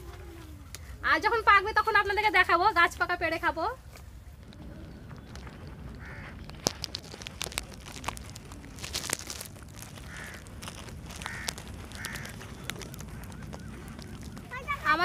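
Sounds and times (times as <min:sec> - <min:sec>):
sharp crackles and snaps: 0:03.9 - 0:15.0
steady low rumble: 0:04.2 - 0:15.0
crows cawing: 0:05.4 - 0:08.0, 0:08.8 - 0:14.9.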